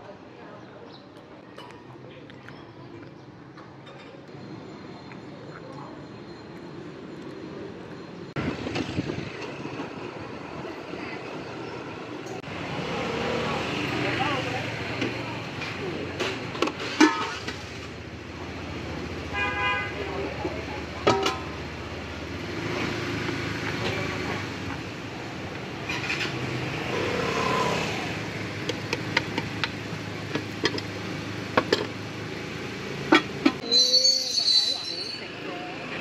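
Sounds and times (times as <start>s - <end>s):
street traffic hum: 0.0s - 36.0s
vehicle horn tooting: 19.3s - 20.1s.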